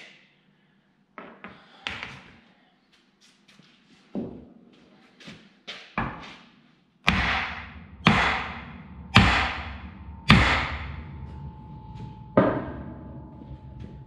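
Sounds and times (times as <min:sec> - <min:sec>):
sledgehammer striking steel: 0:07.1 - 0:14.0
metallic ringing: 0:07.4 - 0:14.0.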